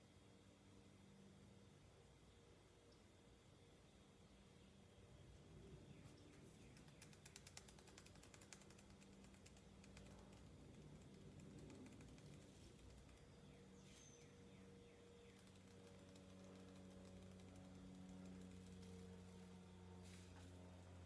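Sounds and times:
low steady hum: 0.0 - 21.0
glitter shaker clicking: 6.4 - 13.4, 15.3 - 19.2.

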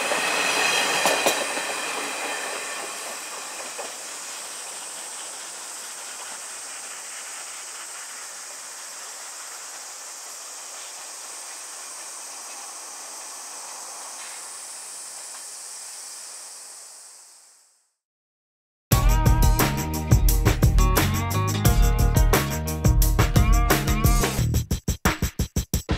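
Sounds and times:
train wheels clattering: 0.0 - 13.4
steady high hiss: 0.0 - 17.9.

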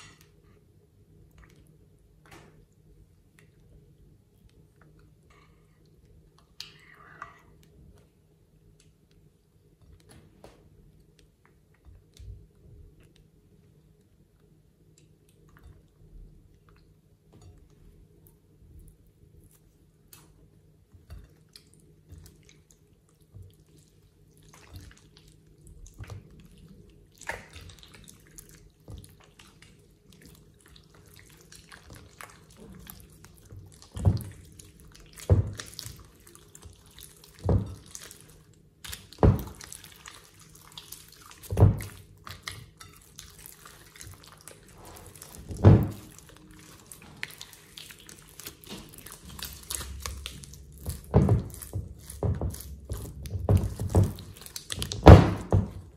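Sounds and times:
slime squelching: 21.0 - 55.9.

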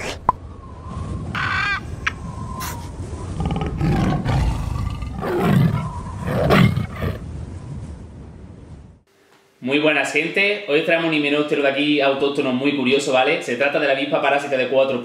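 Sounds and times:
tiger roaring: 3.3 - 7.2.

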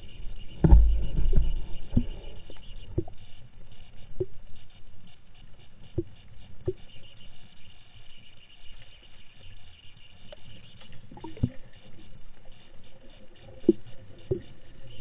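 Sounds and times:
muffled low thump: 0.6 - 2.3.

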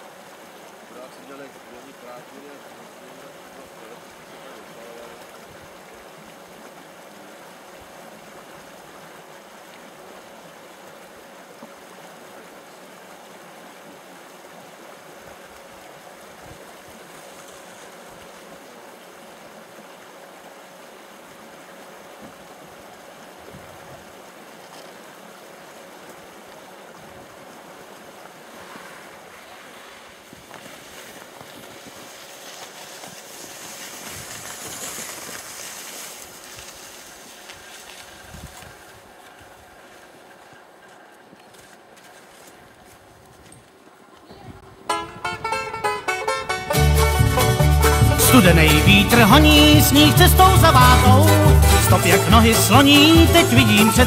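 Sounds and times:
even hiss: 0.0 - 40.1, 46.7 - 54.0.

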